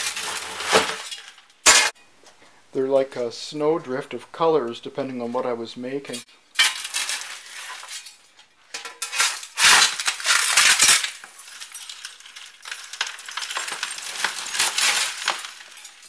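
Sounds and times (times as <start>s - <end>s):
shovel scraping glass: 0.0s - 2.0s, 6.1s - 8.2s, 9.0s - 16.0s.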